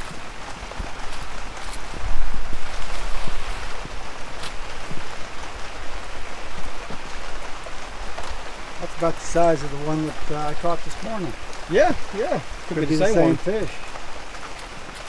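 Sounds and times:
heavy rain pouring: 0:00.0 - 0:15.0.

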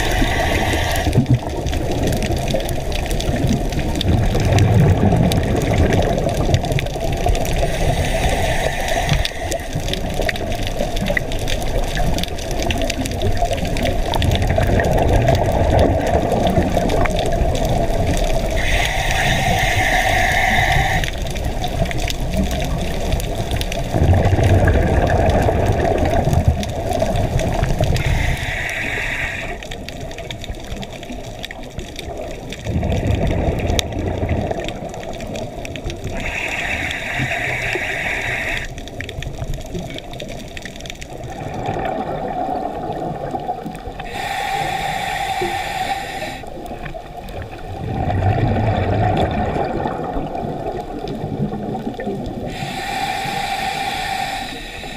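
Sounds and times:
regulator hissing inhale: 0:00.0 - 0:01.3, 0:07.5 - 0:10.0, 0:18.4 - 0:21.7, 0:27.9 - 0:29.8, 0:36.1 - 0:38.8, 0:44.0 - 0:47.0, 0:52.4 - 0:54.9
exhaled air bubbling: 0:00.0 - 0:54.9.

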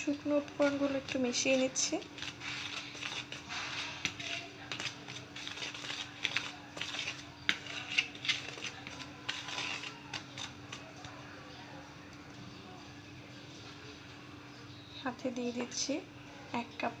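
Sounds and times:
whisk scraping flour in bowl: 0:00.1 - 0:11.2.

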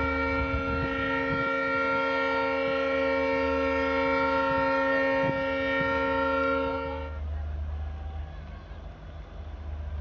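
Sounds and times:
locomotive horn blast: 0:00.0 - 0:07.3.

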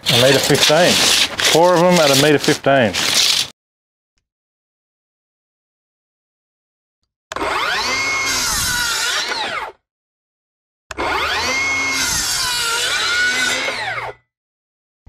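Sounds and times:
circular saw cutting timber: 0:00.0 - 0:03.5, 0:07.3 - 0:09.8, 0:10.9 - 0:14.2.

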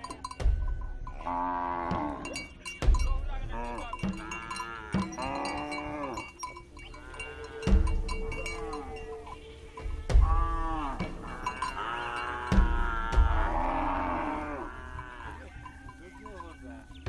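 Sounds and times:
dull low thumps: 0:00.0 - 0:01.3, 0:12.4 - 0:13.9
cowbells clinking: 0:00.0 - 0:17.0
livestock bleating: 0:01.1 - 0:02.5, 0:03.5 - 0:09.4, 0:10.2 - 0:16.8
long lowing call: 0:04.2 - 0:17.0.

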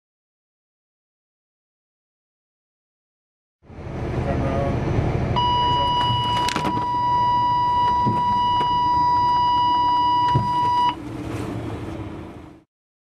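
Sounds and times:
truck engine and road noise: 0:03.6 - 0:12.7
steady warning tone: 0:05.4 - 0:11.0.

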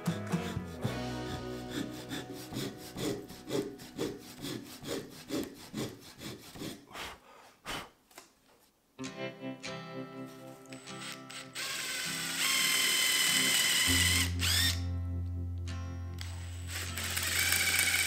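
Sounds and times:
handsaw cutting wood: 0:00.0 - 0:07.0, 0:11.7 - 0:14.8, 0:16.8 - 0:18.0.

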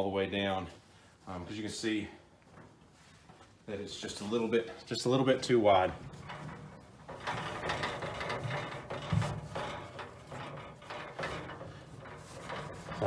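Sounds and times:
carpet panel scraping against steel: 0:05.3 - 0:13.0.

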